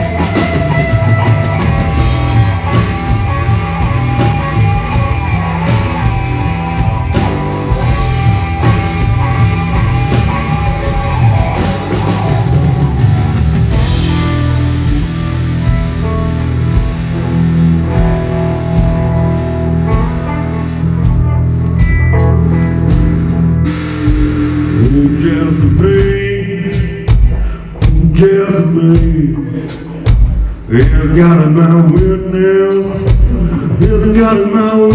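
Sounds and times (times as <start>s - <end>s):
drum kit steady beat: 0.0s - 34.9s
electric guitar through amplifier: 0.0s - 34.9s
man singing: 24.7s - 34.9s.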